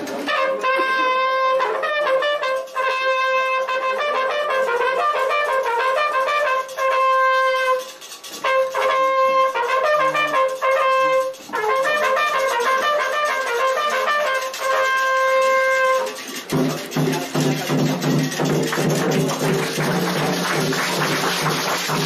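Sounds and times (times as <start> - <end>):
bugle call: 0.3 - 16.3.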